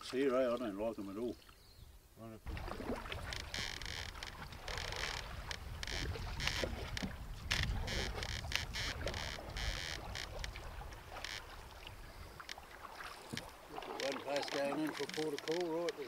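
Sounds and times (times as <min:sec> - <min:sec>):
water splashing against canoe: 0:02.4 - 0:16.0
wind rumble on microphone: 0:02.5 - 0:12.4.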